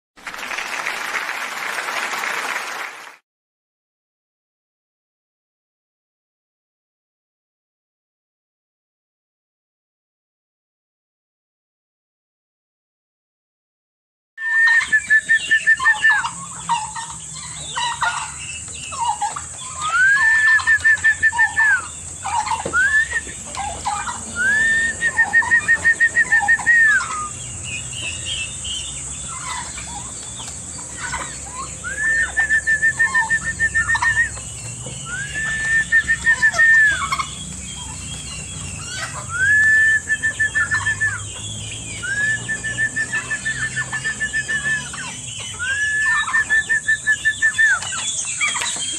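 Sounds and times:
chickens clucking and chirping: 0:14.4 - 0:48.9
loud pulsing poultry call: 0:14.5 - 0:48.9.

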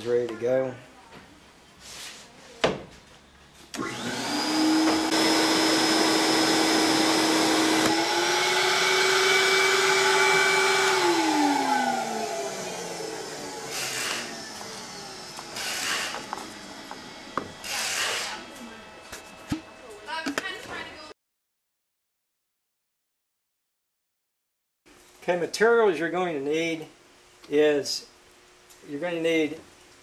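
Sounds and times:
vacuum cleaner motor whining: 0:03.8 - 0:19.6.

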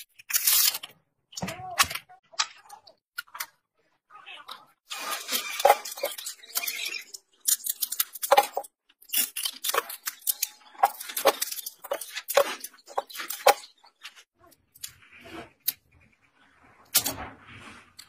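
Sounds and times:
scissors snipping plastic: 0:04.9 - 0:13.6.

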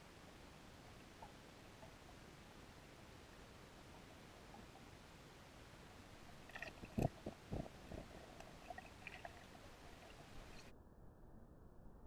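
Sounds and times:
faint steady hiss: 0:00.0 - 0:10.7
muffled underwater thumps: 0:06.8 - 0:08.5.

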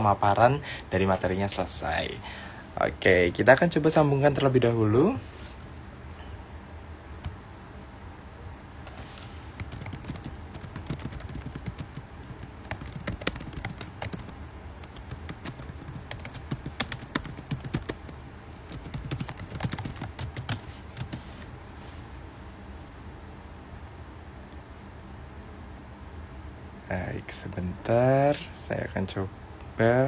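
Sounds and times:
keyboard typing: 0:09.5 - 0:21.2.

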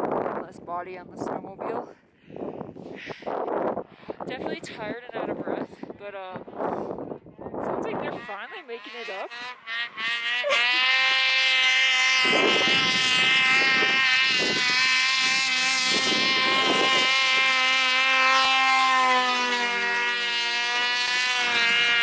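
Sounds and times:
wind gusts: 0:00.0 - 0:22.0
snowmobile engine buzzing: 0:06.6 - 0:22.0.

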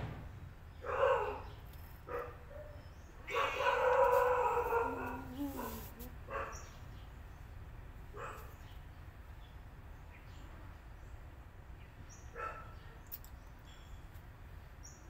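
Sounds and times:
kittens mewing: 0:03.3 - 0:06.3.

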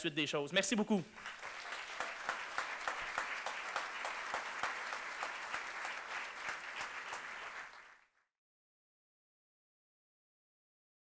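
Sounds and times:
audience applauding: 0:01.2 - 0:08.2.

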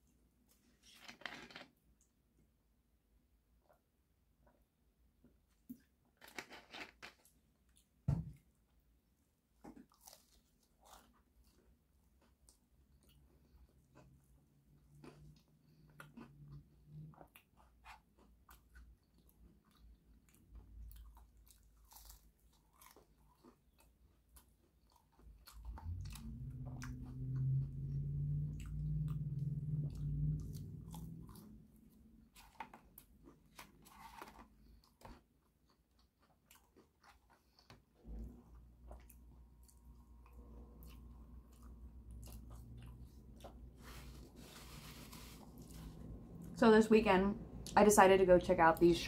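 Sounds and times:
chewing crunchy sandwich: 0:05.5 - 0:08.0, 0:09.6 - 0:46.5
low hum: 0:25.7 - 0:32.0, 0:38.0 - 0:48.9.

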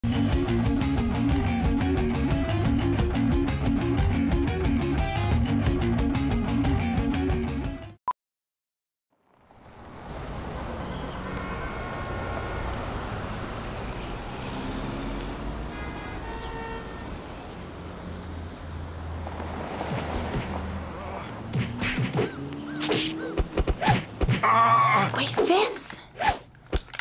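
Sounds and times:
rock music: 0:00.0 - 0:08.0
cars driving past: 0:09.2 - 0:24.2.

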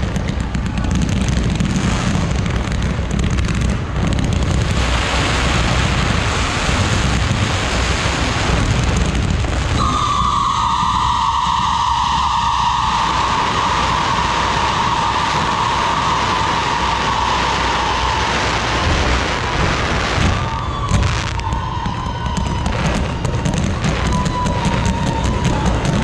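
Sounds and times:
fireworks hissing and rumbling: 0:00.0 - 0:26.0
rapid crackling pops: 0:00.0 - 0:26.0
whistling tone dropping in pitch: 0:09.8 - 0:18.3.

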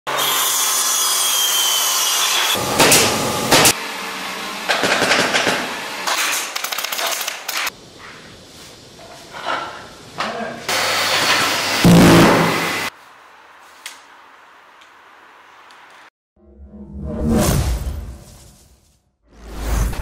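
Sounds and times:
table saw cutting wood: 0:00.1 - 0:06.5, 0:10.7 - 0:12.9.

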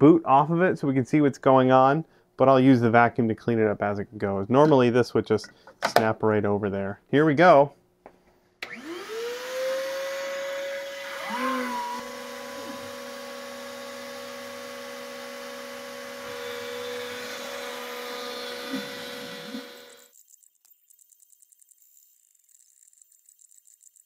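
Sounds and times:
router spindle whine: 0:08.6 - 0:20.2
lower motor tone: 0:11.0 - 0:20.0.

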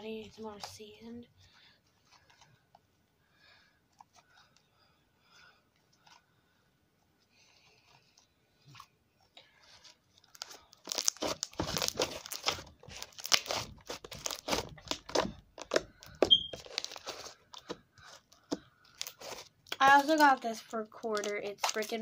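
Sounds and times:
crinkling and crunching: 0:09.6 - 0:22.0.

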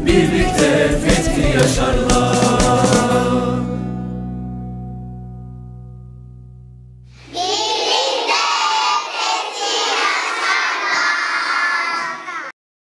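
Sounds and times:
children calling out together: 0:07.2 - 0:12.6.

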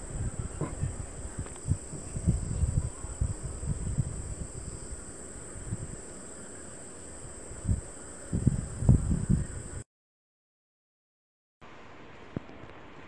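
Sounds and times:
high-pitched hiss: 0:00.0 - 0:09.8.

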